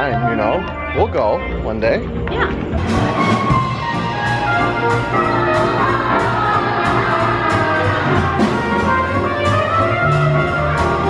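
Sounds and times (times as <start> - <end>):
saxophone: 0.0 - 11.0
upright bass: 0.0 - 11.0
drum kit with cymbals: 2.3 - 11.0
trumpet playing lead: 2.8 - 11.0.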